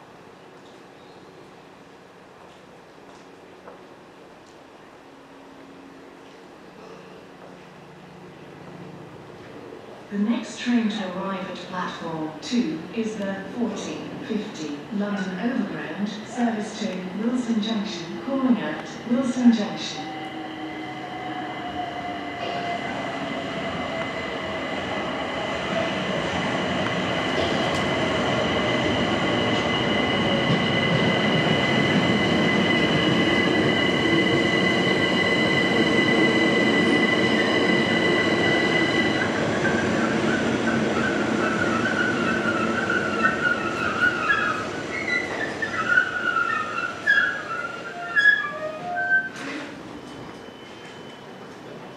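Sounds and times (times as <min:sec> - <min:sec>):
train wheels squealing: 0:29.2 - 0:51.9.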